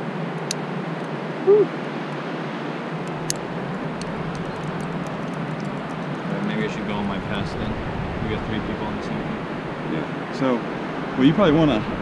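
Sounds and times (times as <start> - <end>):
short vocal sound: 1.4 - 1.7
wind on microphone: 3.1 - 12.0.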